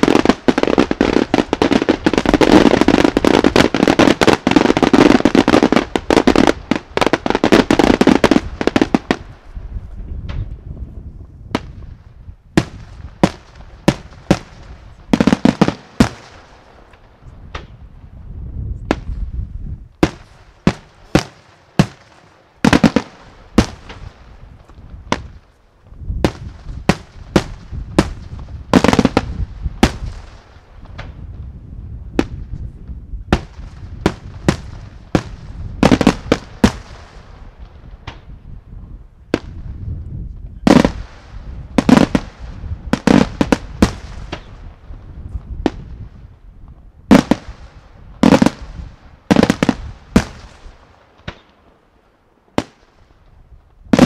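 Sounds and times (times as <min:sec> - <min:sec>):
fireworks bangs: 0:00.0 - 0:10.7, 0:11.5 - 0:18.2, 0:18.8 - 0:38.4, 0:39.2 - 0:51.8.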